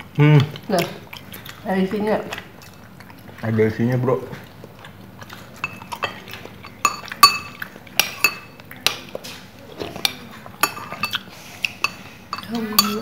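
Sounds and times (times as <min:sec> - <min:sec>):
spoons clinking on ceramic bowl: 0:05.6 - 0:09.0, 0:10.0 - 0:13.0.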